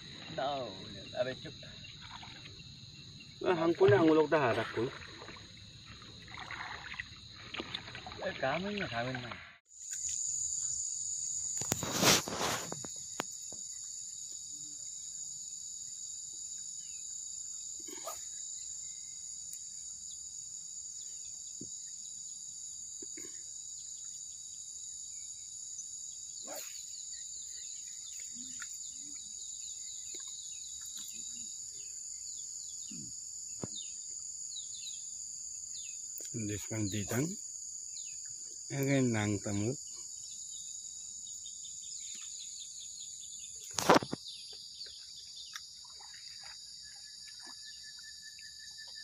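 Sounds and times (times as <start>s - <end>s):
insects chirping: 0.0s - 49.0s.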